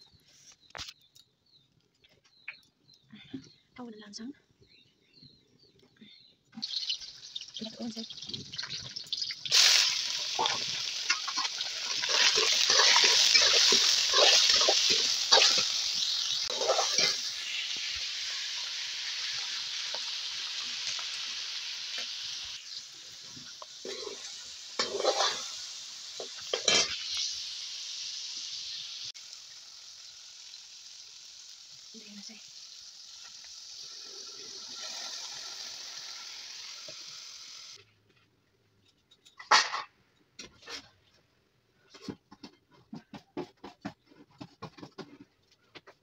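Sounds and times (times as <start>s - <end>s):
meat sizzling in hot oil: 6.6s - 37.8s
metal spoon scraping wok: 9.5s - 17.8s, 23.8s - 27.4s.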